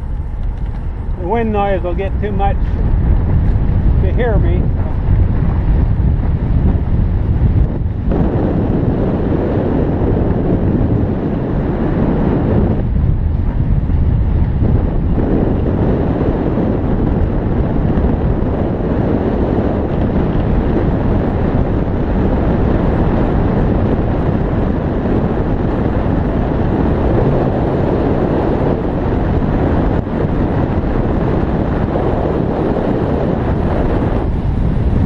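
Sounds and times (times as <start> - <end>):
wind rushing over microphone: 0.0 - 35.0.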